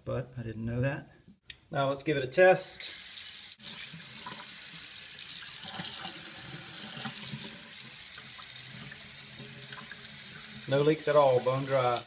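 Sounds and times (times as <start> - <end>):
faucet water running into sink: 2.8 - 12.0.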